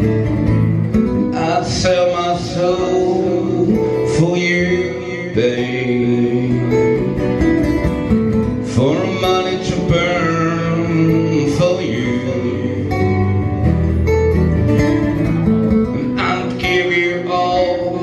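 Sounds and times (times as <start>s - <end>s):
acoustic guitars strummed: 0.0s - 18.0s
man singing into a microphone: 1.0s - 7.5s, 8.5s - 13.9s, 15.8s - 18.0s.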